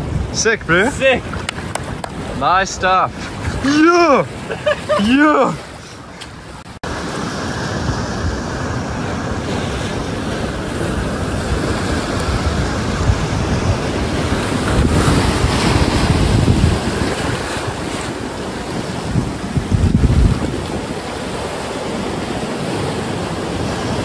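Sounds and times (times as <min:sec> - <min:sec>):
wind buffeting microphone: 0:00.0 - 0:05.0, 0:07.5 - 0:24.0
surf washing over rocks: 0:00.0 - 0:24.0.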